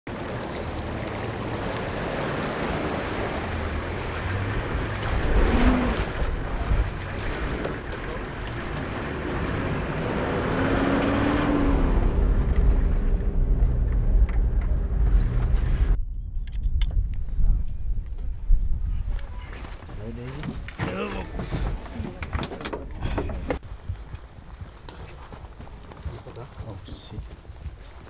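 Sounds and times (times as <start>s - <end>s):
wind buffeting microphone: 3.5s - 20.7s
low rumble: 9.7s - 20.1s.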